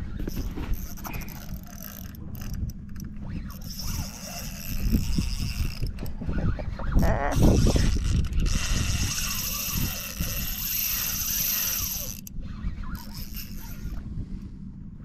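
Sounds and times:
wind rumble on microphone: 0:00.0 - 0:15.0
spinning reel running: 0:00.8 - 0:02.6, 0:03.4 - 0:05.9, 0:07.4 - 0:12.3, 0:13.0 - 0:14.0.

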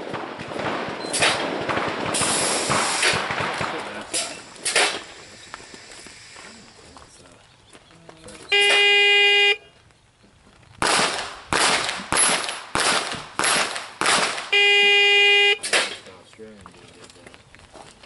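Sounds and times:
pistol shots hitting steel plates: 0:00.0 - 0:05.1, 0:10.8 - 0:14.5, 0:15.6 - 0:16.1.

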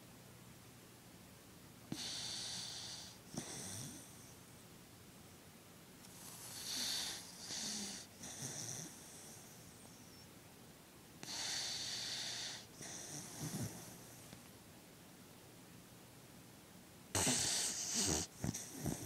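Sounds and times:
dog snoring: 0:01.9 - 0:04.3, 0:06.3 - 0:09.7, 0:11.2 - 0:14.2, 0:17.1 - 0:19.0.

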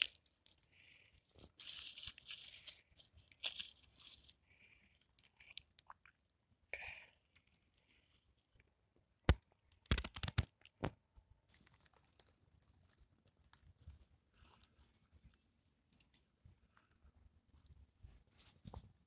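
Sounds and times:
rustling of dry pine needles: 0:00.0 - 0:04.4, 0:11.5 - 0:16.2.

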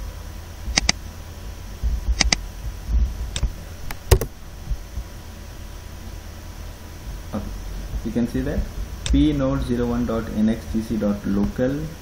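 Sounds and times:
computer mouse and key clicks: 0:00.8 - 0:01.0, 0:02.2 - 0:02.4.

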